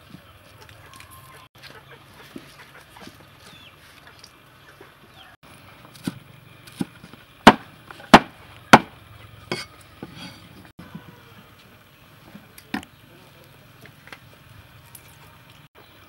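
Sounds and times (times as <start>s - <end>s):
cleaver chopping on wooden block: 7.5s - 8.9s.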